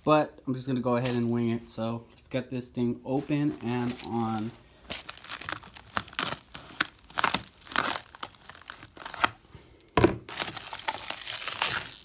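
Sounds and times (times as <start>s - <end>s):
plastic wrap crinkling and tearing: 4.2s - 9.6s, 10.3s - 12.0s.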